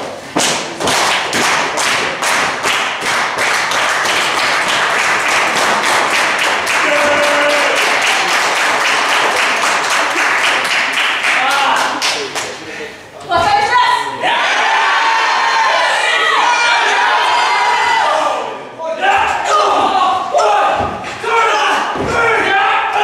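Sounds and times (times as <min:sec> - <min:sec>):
crowd clapping in rhythm: 0:00.0 - 0:12.6
crowd cheering: 0:03.4 - 0:12.3, 0:13.8 - 0:23.0
held shout: 0:06.8 - 0:08.0.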